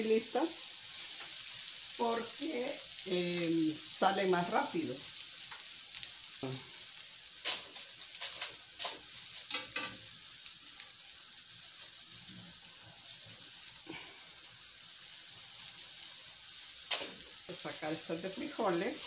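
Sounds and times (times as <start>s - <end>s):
food sizzling on a griddle: 0.0s - 19.0s
spatula scraping and tapping pan: 7.4s - 10.0s.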